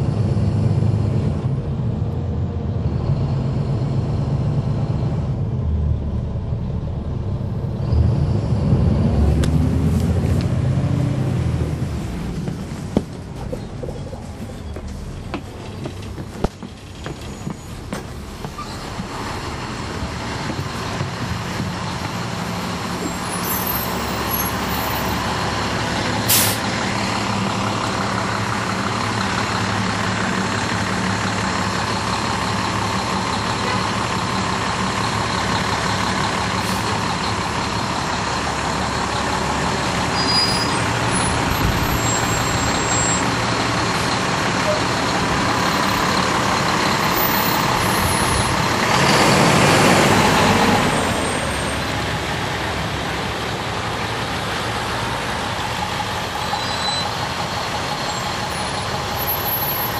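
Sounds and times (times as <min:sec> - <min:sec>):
bus diesel engine: 0:00.0 - 0:59.9
road noise: 0:00.0 - 0:59.9
brief sharp hiss: 0:26.3 - 0:26.6.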